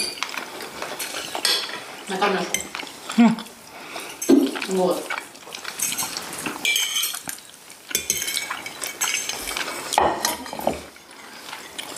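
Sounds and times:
cutlery and dishes clinking: 0:00.0 - 0:03.2, 0:05.6 - 0:11.9.

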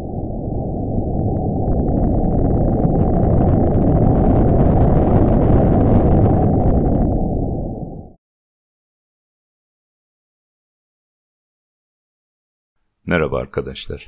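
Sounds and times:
deep rumbling: 0:00.0 - 0:08.2
faint crackles: 0:01.1 - 0:07.3.

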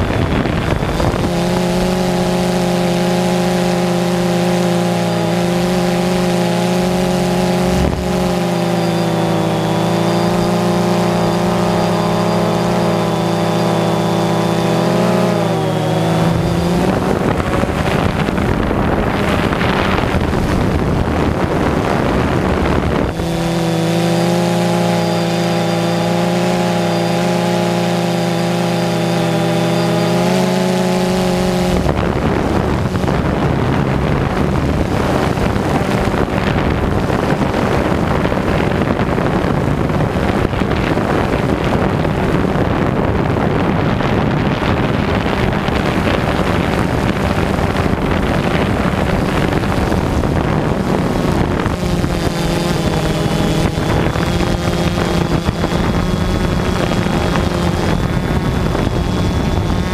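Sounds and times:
drone propellers humming: 0:00.0 - 0:59.9
wind noise on microphone: 0:00.0 - 0:59.9.

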